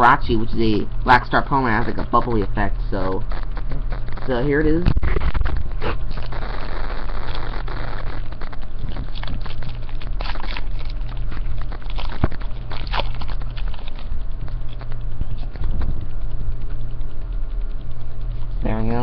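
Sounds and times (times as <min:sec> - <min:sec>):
low rumble of hands near mic: 0:00.0 - 0:19.0
foil wrapper crinkling: 0:03.3 - 0:16.6.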